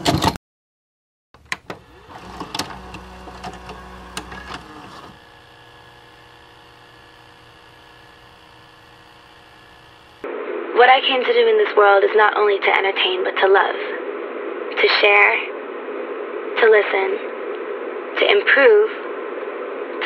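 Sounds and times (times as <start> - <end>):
vcr clicks: 1.4 - 10.2
steady hum with hiss: 1.4 - 20.0
motor whirring: 1.6 - 10.3.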